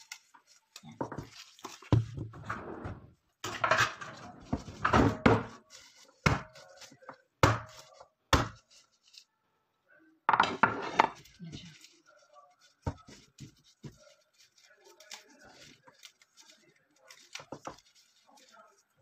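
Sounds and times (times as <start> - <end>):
metal tool crushing garlic on board: 6.2 - 8.6.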